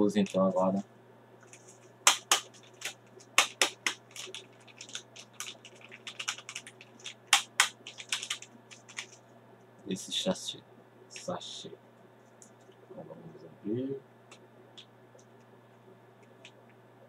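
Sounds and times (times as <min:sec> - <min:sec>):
foil sachet crinkling: 0:03.6 - 0:09.2.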